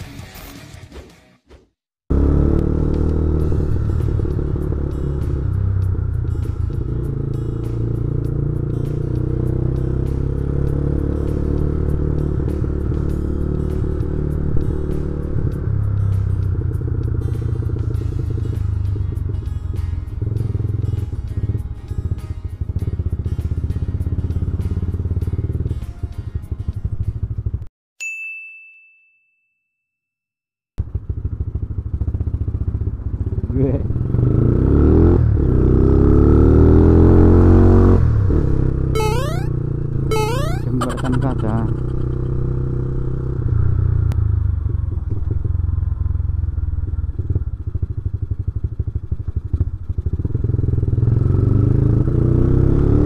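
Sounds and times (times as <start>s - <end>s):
motorcycle engine running: 2.1s - 27.7s, 30.8s - 37.9s, 40.3s - 53.0s
road and wind noise: 2.1s - 27.7s, 30.9s - 38.9s, 42.0s - 53.0s
ringing ding: 28.0s - 30.0s.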